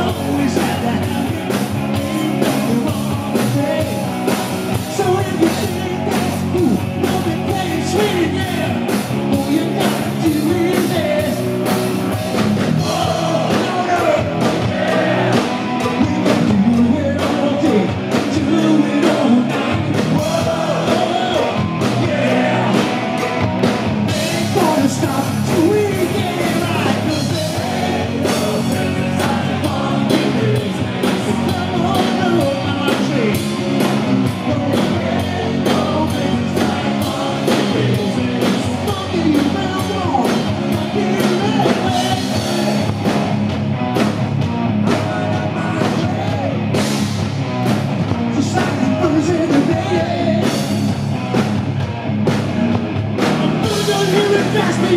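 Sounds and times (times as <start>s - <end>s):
man singing into a microphone: 0.0s - 11.5s, 12.8s - 14.5s, 15.3s - 22.9s, 24.2s - 33.4s, 34.4s - 42.5s, 44.9s - 46.6s, 48.3s - 50.6s, 53.5s - 54.9s
live rock band playing: 0.0s - 54.9s.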